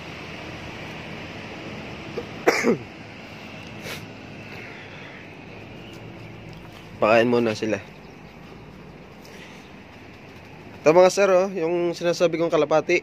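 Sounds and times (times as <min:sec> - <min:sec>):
traffic: 0:00.0 - 0:13.0
wind: 0:00.0 - 0:13.0
person coughing: 0:02.2 - 0:02.9.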